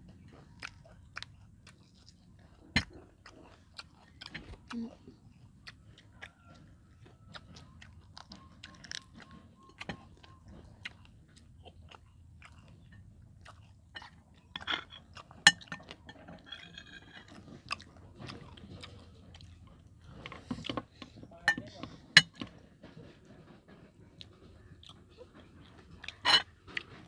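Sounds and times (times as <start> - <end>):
chewing and crunching crispy food: 0.0 - 27.0.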